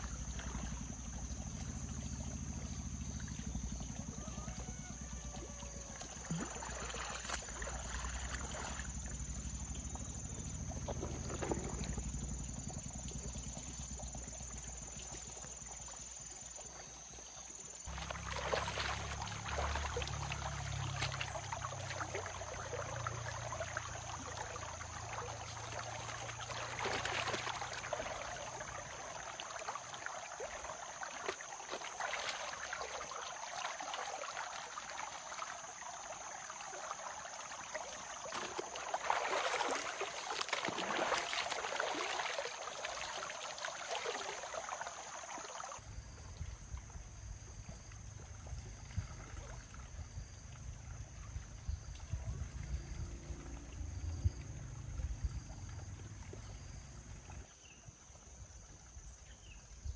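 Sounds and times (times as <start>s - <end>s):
shallow river flowing: 0.0s - 59.9s
splashing of clothes being scrubbed: 5.9s - 8.9s, 17.9s - 35.5s, 37.7s - 45.7s
water pouring off wet cloth: 17.9s - 45.8s.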